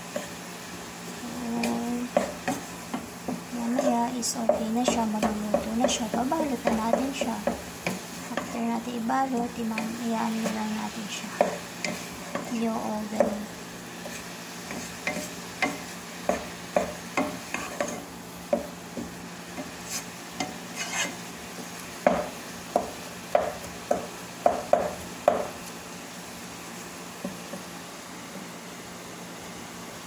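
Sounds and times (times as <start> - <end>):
faint sizzle: 0.0 - 30.0
wooden spatula scraping a pan: 1.5 - 22.4.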